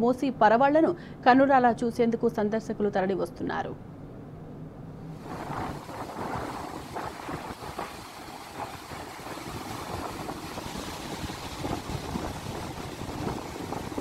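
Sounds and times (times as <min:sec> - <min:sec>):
floodwater roaring through spillway: 0:05.2 - 0:14.0.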